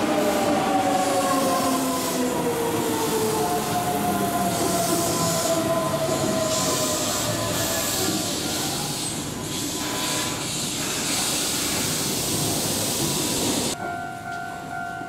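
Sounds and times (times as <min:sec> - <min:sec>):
electric train stopping: 0:00.0 - 0:15.0
loud hiss: 0:06.5 - 0:13.8.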